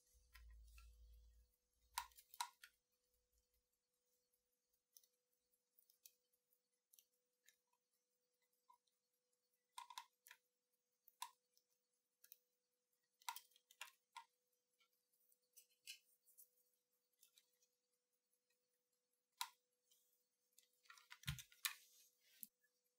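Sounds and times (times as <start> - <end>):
small parts clicking on plastic: 9.7 - 10.4, 13.2 - 14.9.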